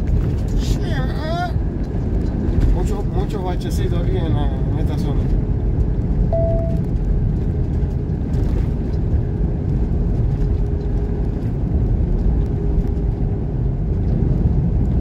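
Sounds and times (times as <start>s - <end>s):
truck engine rumble: 0.0s - 15.0s
faint steady whine: 6.3s - 6.9s.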